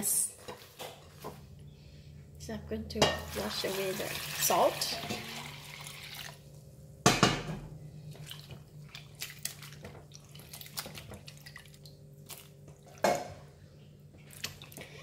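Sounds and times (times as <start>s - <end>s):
hands swishing in bowl of water: 8.1s - 13.0s
water splashes and drips: 8.1s - 13.2s, 14.2s - 15.0s.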